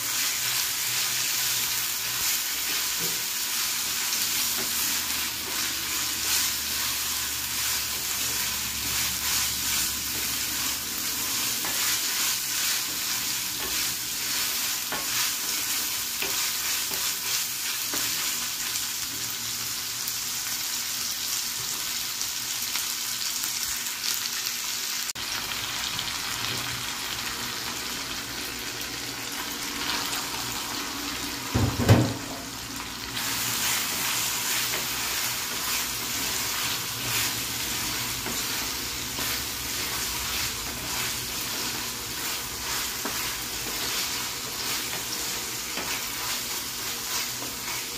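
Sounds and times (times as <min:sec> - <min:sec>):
onions sizzling in oil: 0:00.0 - 0:47.9
wooden spatula scraping pan: 0:02.1 - 0:18.3, 0:33.2 - 0:47.9
low thump of food into pan: 0:31.5 - 0:32.4.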